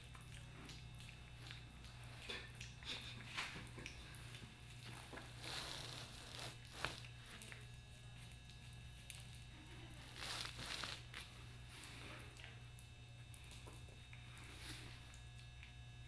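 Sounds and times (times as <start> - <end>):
piglet crunching cereal: 0.0 - 12.6.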